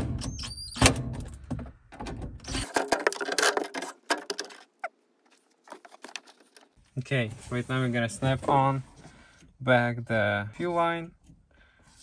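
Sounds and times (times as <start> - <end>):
metal hardware clicks and rattles: 2.6 - 4.8.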